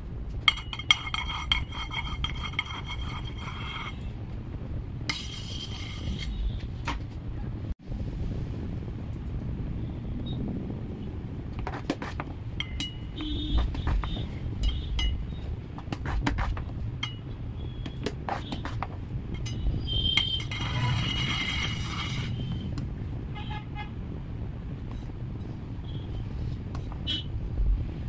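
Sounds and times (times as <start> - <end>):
metal knife clinking and scraping: 0.5 - 4.1, 19.4 - 22.4.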